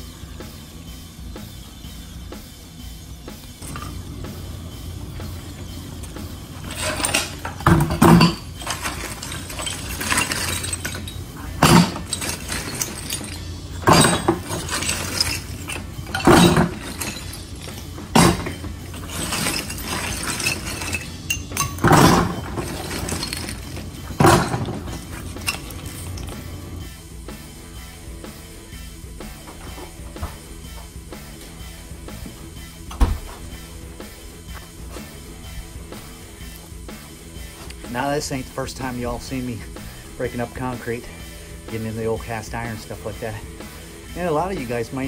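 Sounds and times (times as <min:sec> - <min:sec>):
tile and rubble clattering: 0:03.6 - 0:26.8.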